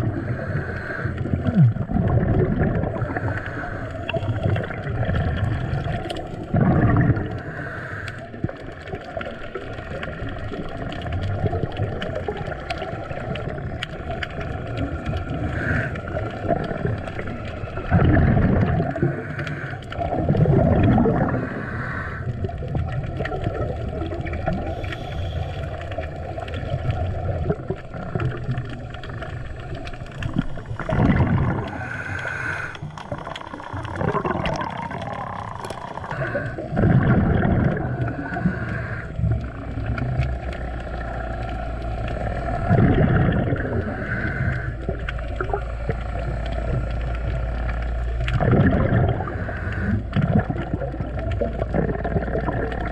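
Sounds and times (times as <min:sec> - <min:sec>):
diver breathing through regulator: 0:00.0 - 0:01.8, 0:02.8 - 0:06.0, 0:06.9 - 0:08.4, 0:14.8 - 0:16.6, 0:17.4 - 0:22.5, 0:24.6 - 0:26.3, 0:28.6 - 0:50.2
exhaled bubbles rushing: 0:00.0 - 0:52.9
steady underwater hiss: 0:00.0 - 0:52.9.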